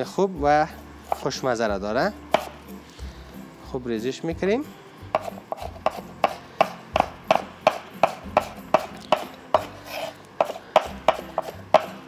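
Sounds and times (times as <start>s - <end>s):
knife chopping on cutting board: 1.1s - 1.3s, 2.3s - 2.6s, 5.1s - 12.0s.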